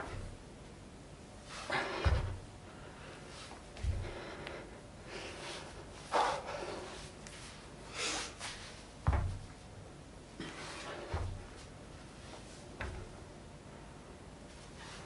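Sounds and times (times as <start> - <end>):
heavy breathing: 1.6 - 8.5
foot thudding on floor: 1.8 - 2.5, 8.4 - 9.6, 11.0 - 11.7, 12.8 - 13.2.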